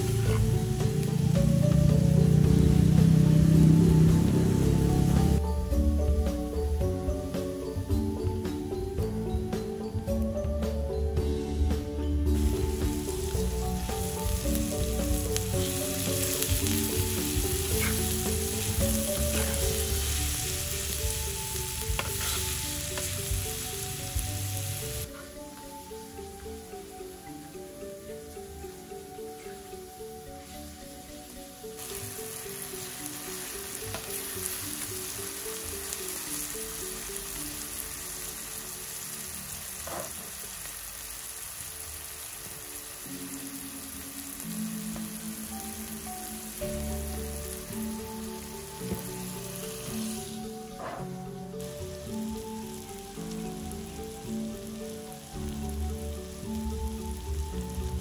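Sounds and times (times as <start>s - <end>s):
food sizzling in clay dish: 0.0s - 58.0s
gentle melodic music: 0.0s - 58.0s.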